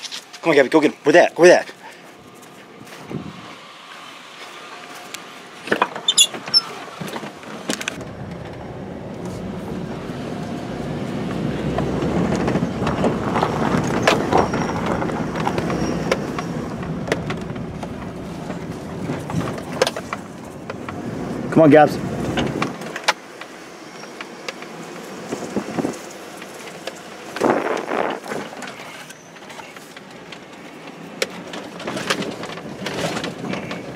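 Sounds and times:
road noise: 0:00.0 - 0:33.9
truck engine running: 0:06.7 - 0:22.8.

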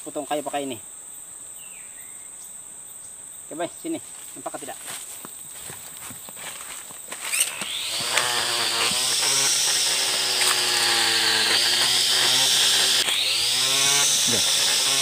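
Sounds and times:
string trimmer motor whining: 0:07.1 - 0:15.0.

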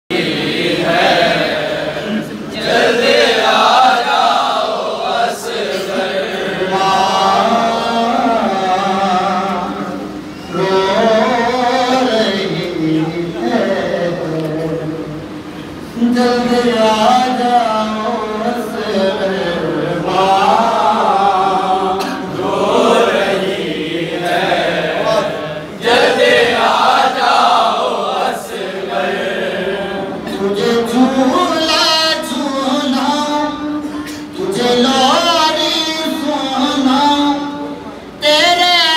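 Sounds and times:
group of men chanting: 0:00.1 - 0:09.0
men chanting into a microphone: 0:00.1 - 0:15.4, 0:16.0 - 0:38.9.

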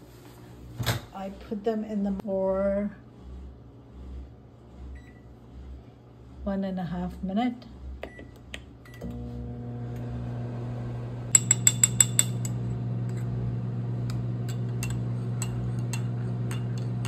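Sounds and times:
microwave oven humming: 0:00.0 - 0:17.0
spoon clinking against ceramic mug: 0:11.3 - 0:12.6, 0:14.4 - 0:17.0.

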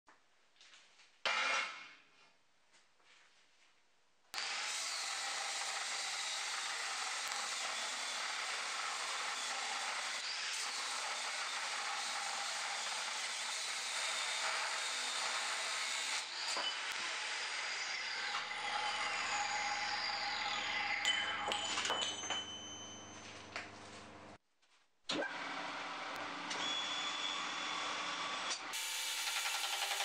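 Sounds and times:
angle grinder cutting steel: 0:04.4 - 0:22.9, 0:26.5 - 0:30.0.

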